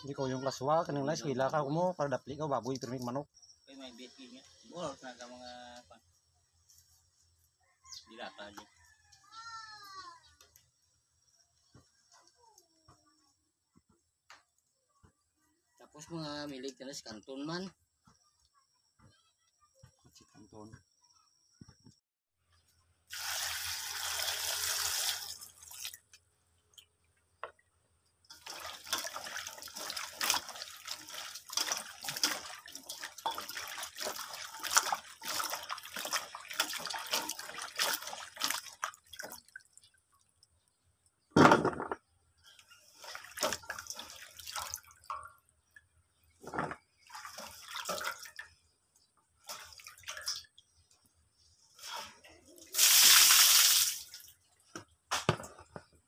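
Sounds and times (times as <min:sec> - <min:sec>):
small splashes and swishes: 0:28.3 - 0:40.5, 0:42.4 - 0:48.7, 0:49.4 - 0:54.8.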